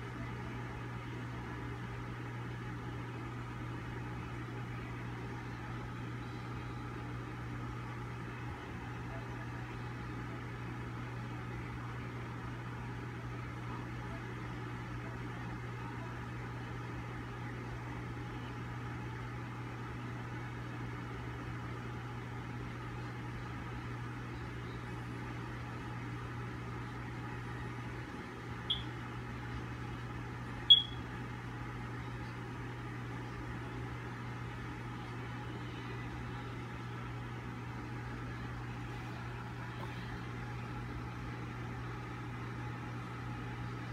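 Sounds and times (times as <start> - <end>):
low mechanical hum: 0.0 - 43.9
high-pitched chirps: 30.7 - 31.0.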